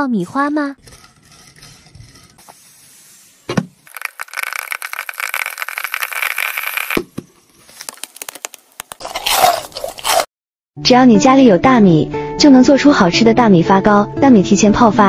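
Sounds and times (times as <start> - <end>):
popcorn popping in oil: 3.8 - 7.0
popped corn rustling: 3.8 - 10.3.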